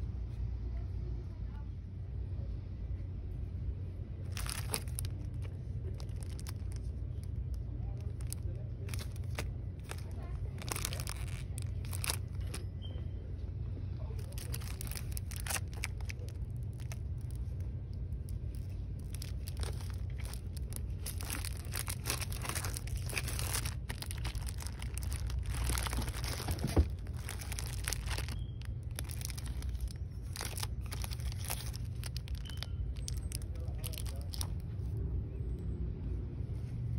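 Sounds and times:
steady low hum: 0:00.0 - 0:36.9
plastic-wrapped notebooks crinkling: 0:04.3 - 0:12.6, 0:14.1 - 0:34.6.

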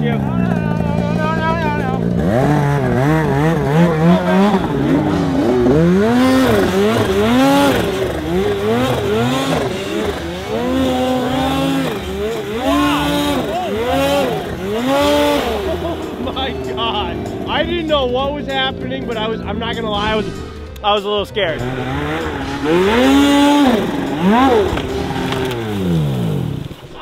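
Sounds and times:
track spinning in snow: 0:00.0 - 0:17.1
snowmobile engine revving: 0:00.0 - 0:27.0.

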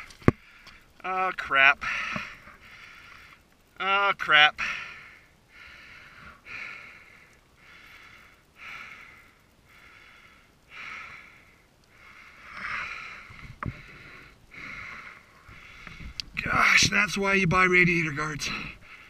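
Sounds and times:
person breathing heavily: 0:01.8 - 0:03.5, 0:04.6 - 0:16.3, 0:18.4 - 0:19.0.

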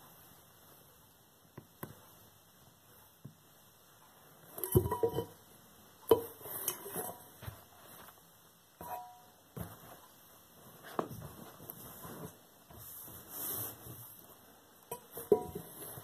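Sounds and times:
metal teapot clanking: 0:04.6 - 0:05.4, 0:14.9 - 0:15.8.

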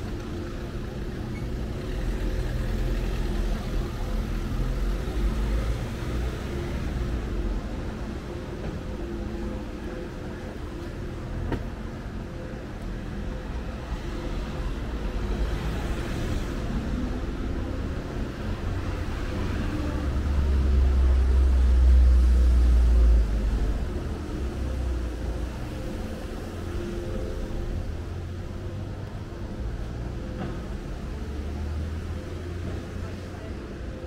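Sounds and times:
street traffic: 0:00.0 - 0:34.0.

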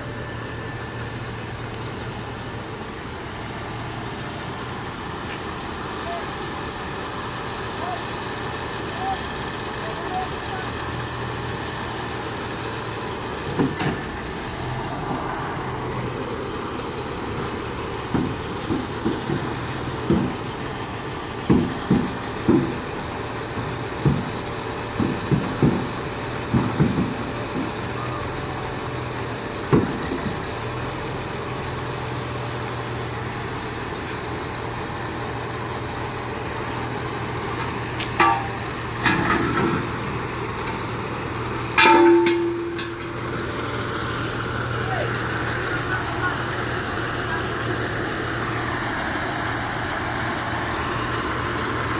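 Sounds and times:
diesel engine idling: 0:00.0 - 0:51.9
short knocks and clanks: 0:18.1 - 0:20.5, 0:21.4 - 0:23.0, 0:23.6 - 0:27.8, 0:37.6 - 0:40.0.

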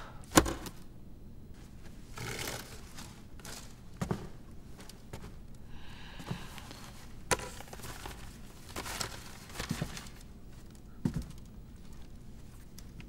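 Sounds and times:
paper rustle: 0:01.6 - 0:05.3, 0:06.7 - 0:13.0.

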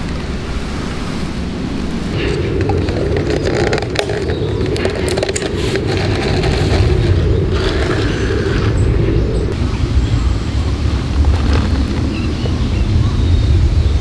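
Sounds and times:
wind on microphone: 0:00.0 - 0:14.0
plastic cup with ice handled: 0:02.2 - 0:08.8, 0:11.1 - 0:12.6.

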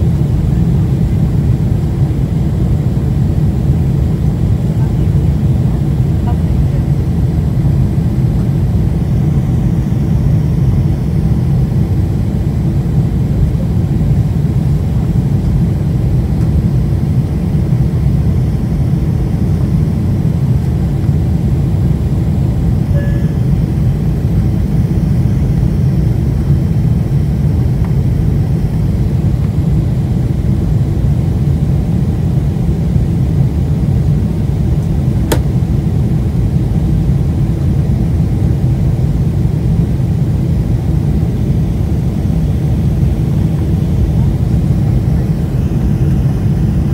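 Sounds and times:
jet engines low rumble: 0:00.0 - 0:46.9
rushing air in cabin: 0:34.3 - 0:37.6, 0:41.1 - 0:46.9
sharp click: 0:35.3 - 0:35.5.

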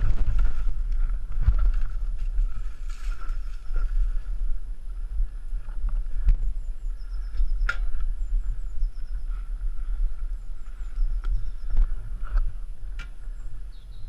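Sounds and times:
motorbike low rumble: 0:00.0 - 0:14.0.

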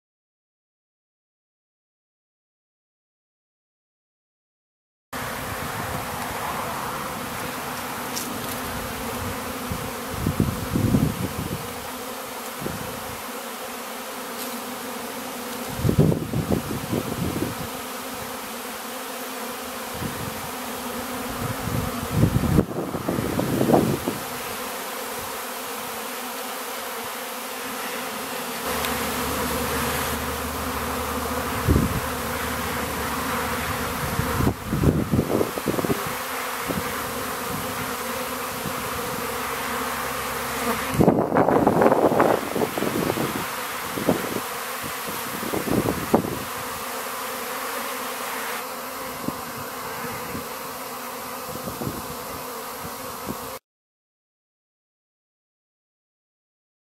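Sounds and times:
hum of bee swarm: 0:05.2 - 0:53.6.

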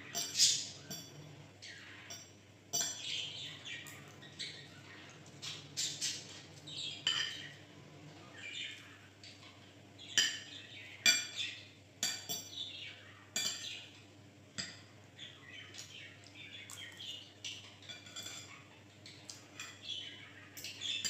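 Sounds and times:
cutlery clinking against a plate: 0:00.0 - 0:01.4, 0:02.0 - 0:04.5, 0:05.1 - 0:07.6, 0:09.3 - 0:12.6, 0:13.4 - 0:14.0, 0:14.6 - 0:14.9, 0:16.7 - 0:19.9
pet bird chirping: 0:00.0 - 0:07.6, 0:15.2 - 0:21.0.

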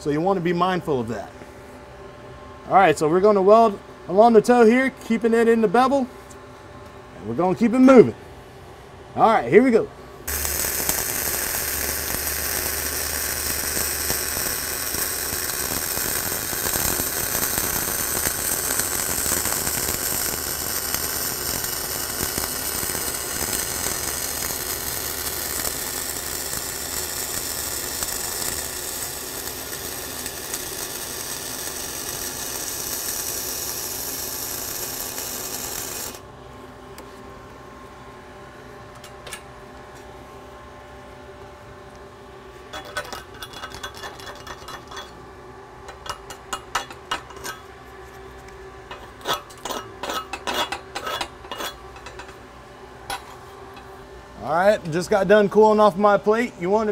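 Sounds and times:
arc welding: 0:10.3 - 0:36.3, 0:42.7 - 0:45.2, 0:45.9 - 0:47.7, 0:48.4 - 0:52.4.

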